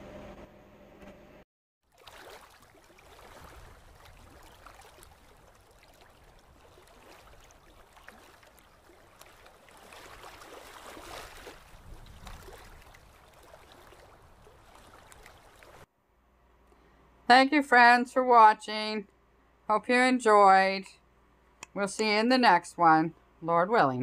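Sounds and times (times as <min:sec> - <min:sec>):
small waves washing up beach: 0:01.9 - 0:15.9.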